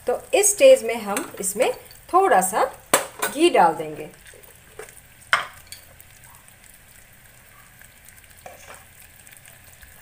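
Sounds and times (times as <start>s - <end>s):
syrup boiling: 3.6s - 10.0s.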